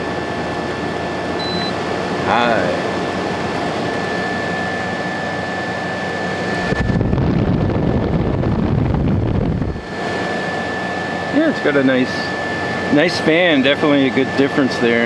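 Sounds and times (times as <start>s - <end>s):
air conditioner fan blowing: 0.0s - 15.0s
air blast rumbling on microphone: 6.5s - 10.2s.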